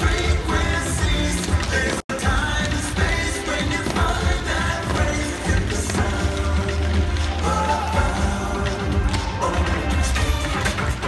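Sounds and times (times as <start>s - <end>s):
dance music with heavy bass: 0.0s - 11.0s.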